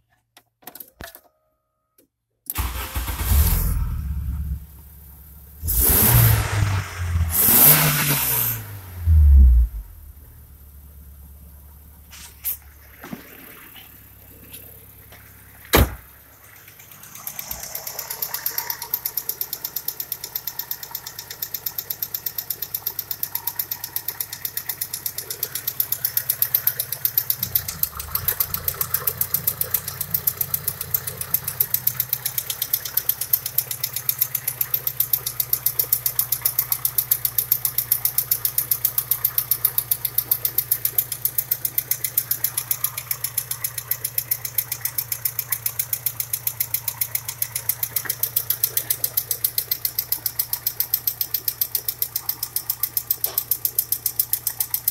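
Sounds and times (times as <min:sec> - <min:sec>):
car engine idling: 0:02.6 - 0:54.9
fast even engine ticking: 0:16.5 - 0:54.9.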